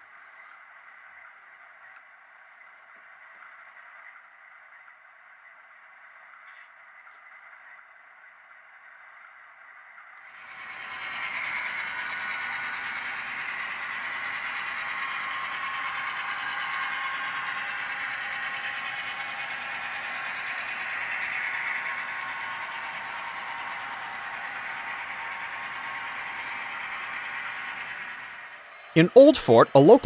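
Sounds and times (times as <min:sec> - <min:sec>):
model train wheels clattering: 0:10.3 - 0:28.6.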